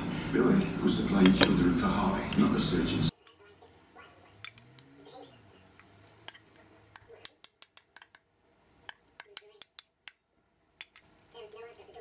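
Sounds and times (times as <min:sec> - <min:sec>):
utensil scraping a bowl: 0:01.2 - 0:02.7.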